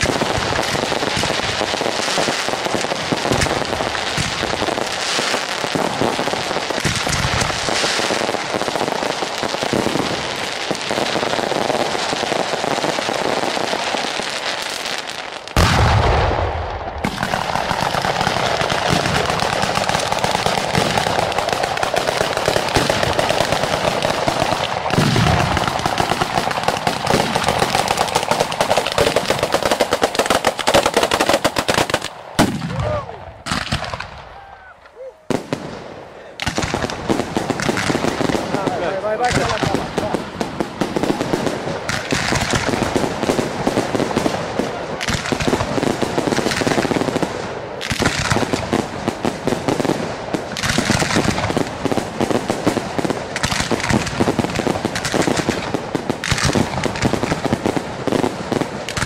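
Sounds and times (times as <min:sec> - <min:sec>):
rapid firecracker bangs: 0:00.0 - 0:34.4, 0:35.3 - 0:59.0
heavy firework boom: 0:15.6 - 0:17.3, 0:32.4 - 0:34.2.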